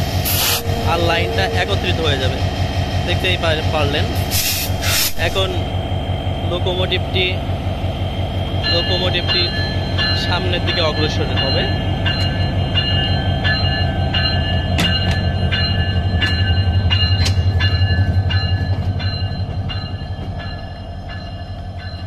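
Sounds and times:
diesel locomotive engine drone: 0.0s - 22.0s
thin high whine: 0.3s - 2.4s
train wheels clicking over rail joints: 8.6s - 22.0s.

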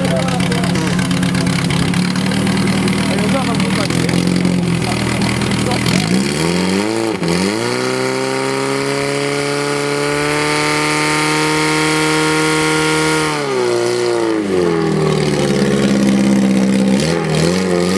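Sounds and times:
pump engine revving: 0.0s - 17.9s.

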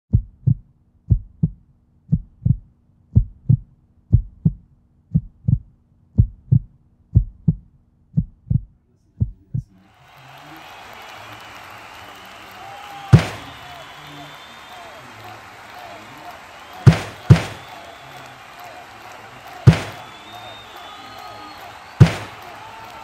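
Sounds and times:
heartbeat thumps: 0.1s - 9.7s.

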